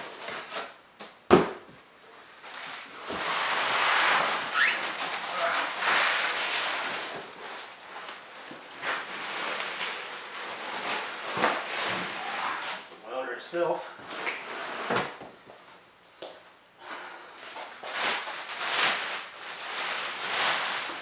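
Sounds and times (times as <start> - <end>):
packaging rustling and crinkling: 2.3 - 12.9, 17.4 - 21.0.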